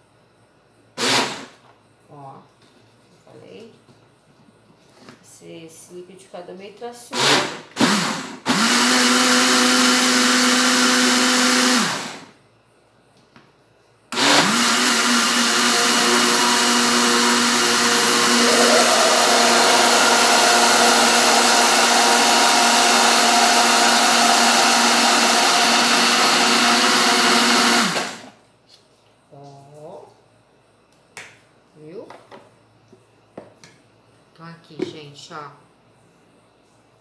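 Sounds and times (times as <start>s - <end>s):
blender running: 7.2s - 12.3s, 14.2s - 28.3s.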